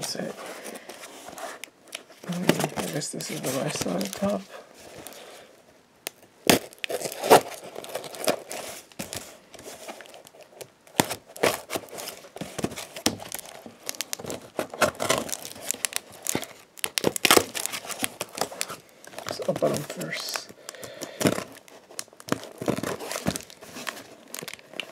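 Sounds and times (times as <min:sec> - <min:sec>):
packing tape peeling off cardboard: 0:06.4 - 0:09.2, 0:09.8 - 0:20.1.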